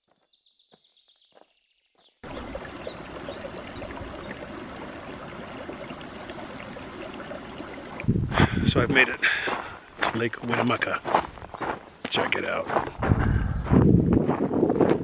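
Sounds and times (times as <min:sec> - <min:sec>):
creek running over rocks: 0:02.2 - 0:12.9.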